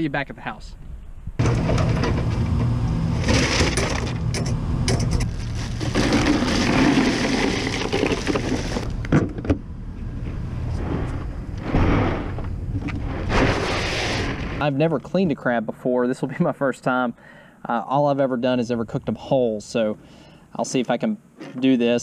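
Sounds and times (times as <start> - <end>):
ice and cooler rattling: 3.2 - 8.9.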